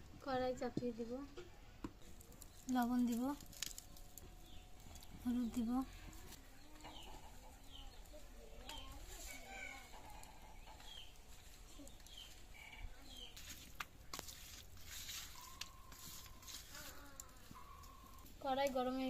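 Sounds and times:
small birds chirping: 0:01.9 - 0:19.0
chickens clucking: 0:06.1 - 0:13.4, 0:15.4 - 0:18.3
hands mixing fish in steel bowl: 0:13.3 - 0:16.8.

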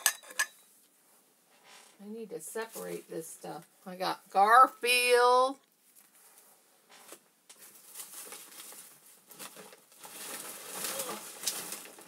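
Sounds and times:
books rustling and crinkling: 0:05.9 - 0:12.0.

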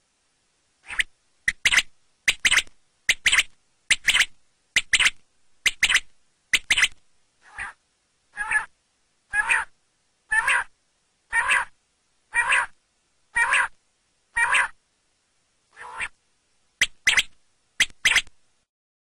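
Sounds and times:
quail calling: 0:00.8 - 0:07.8, 0:08.4 - 0:08.7, 0:09.3 - 0:09.7, 0:10.3 - 0:10.7, 0:11.3 - 0:14.8, 0:15.8 - 0:16.2, 0:16.8 - 0:18.3.

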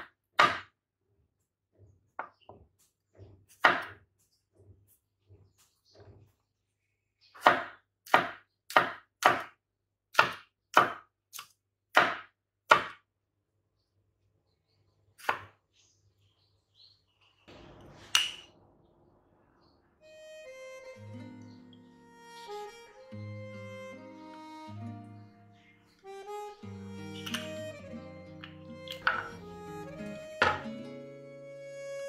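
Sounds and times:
knife knocking on cutting board: 0:29.0 - 0:29.4, 0:30.4 - 0:30.7.

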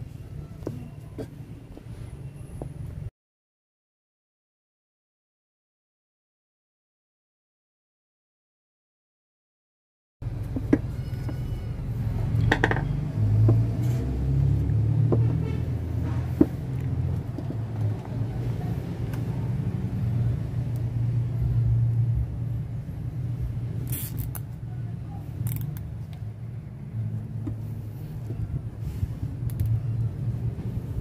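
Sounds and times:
steady low rumble: 0:10.2 - 0:31.0.

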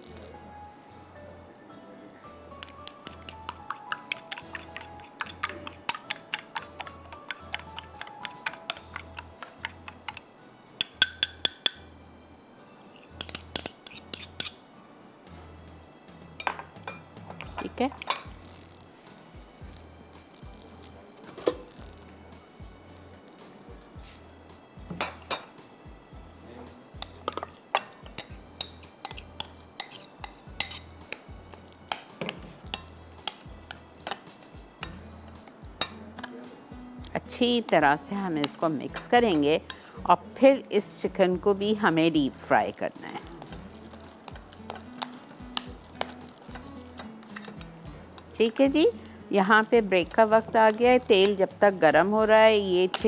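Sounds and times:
soft background music: 0:00.0 - 0:53.0
spoon clinking on glass bowl: 0:02.5 - 0:10.2, 0:10.8 - 0:11.9, 0:12.8 - 0:14.6, 0:27.0 - 0:31.3, 0:31.9 - 0:35.0.

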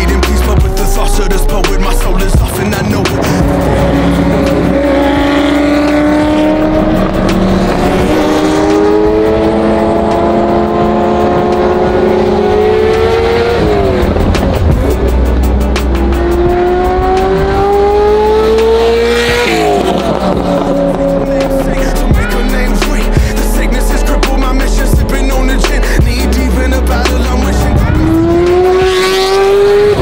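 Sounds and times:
car engine revving through gears: 0:02.2 - 0:22.6, 0:26.6 - 0:30.0.

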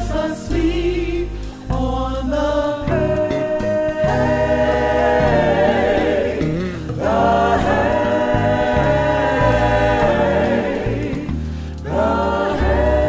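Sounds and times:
voices singing a slow hymn: 0:00.0 - 0:13.0.

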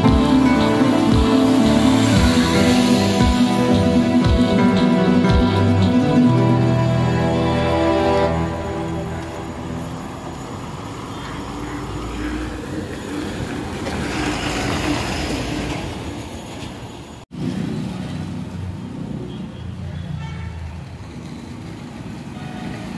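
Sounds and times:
bus engine passing: 0:00.0 - 0:18.9
street traffic hum: 0:00.0 - 0:22.9.

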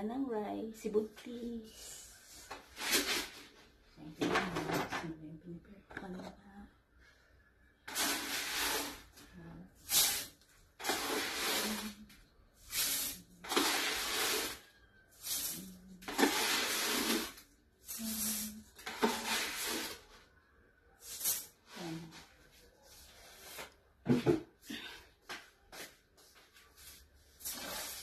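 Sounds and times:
rice pouring hiss: 0:09.9 - 0:11.9, 0:12.7 - 0:14.6, 0:15.2 - 0:20.0.

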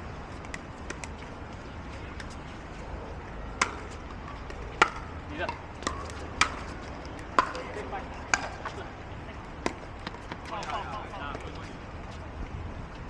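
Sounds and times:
outdoor hum: 0:00.0 - 0:13.0
paddles hitting ball: 0:03.6 - 0:08.8.

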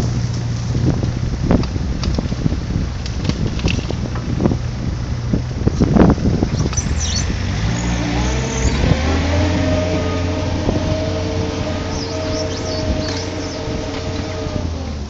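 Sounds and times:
diesel engine revving: 0:00.0 - 0:15.0
faint bird chirps: 0:06.5 - 0:08.9, 0:11.9 - 0:13.7.

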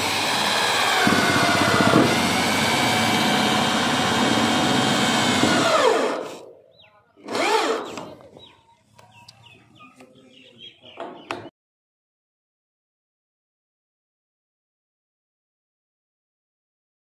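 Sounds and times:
electric drill driving screw: 0:00.0 - 0:06.5, 0:07.2 - 0:08.1.

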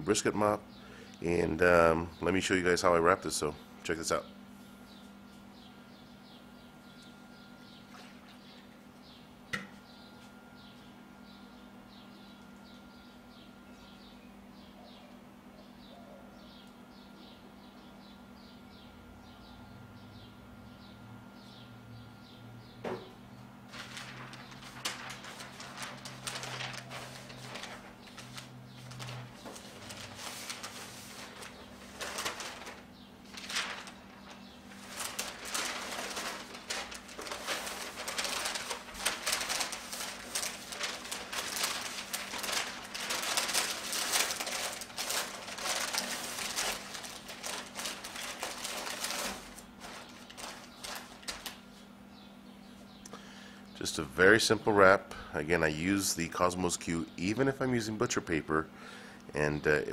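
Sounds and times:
low hum: 0:23.7 - 0:49.2
paper rustling and crinkling: 0:23.7 - 0:51.9.

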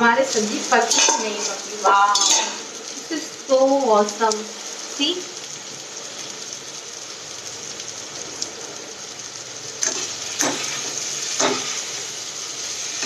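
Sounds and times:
pumpkin frying in hot oil: 0:00.0 - 0:13.0
spatula scraping pan: 0:00.3 - 0:02.7, 0:09.8 - 0:12.1.

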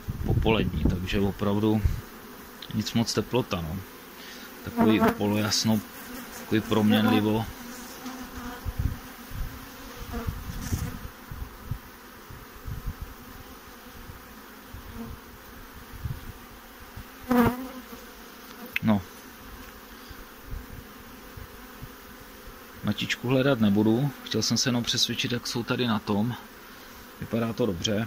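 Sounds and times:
honey bees humming: 0:00.0 - 0:28.0.

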